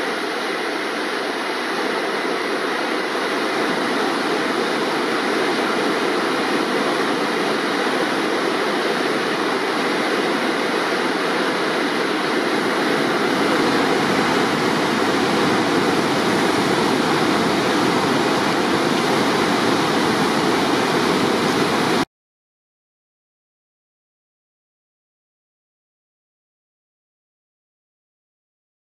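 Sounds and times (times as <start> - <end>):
river rushing over rocks: 0.0 - 22.0.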